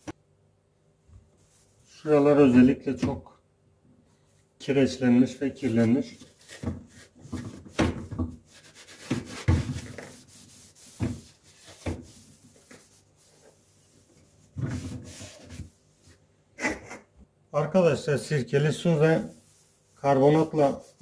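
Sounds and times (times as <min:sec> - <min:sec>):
sponge scrubbing steel tub: 0:08.4 - 0:15.8, 0:18.7 - 0:21.0.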